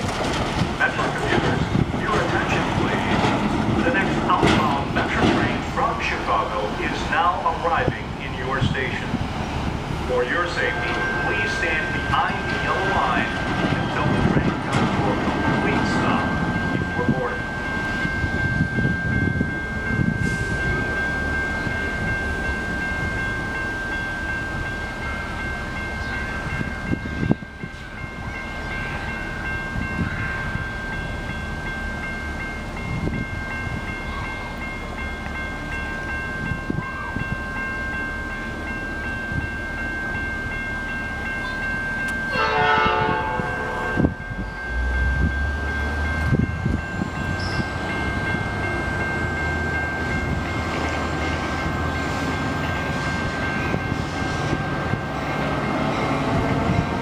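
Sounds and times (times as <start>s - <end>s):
low train rumble: 0.0s - 57.0s
high ringing tone: 16.1s - 52.0s
distant train horn: 42.3s - 46.1s.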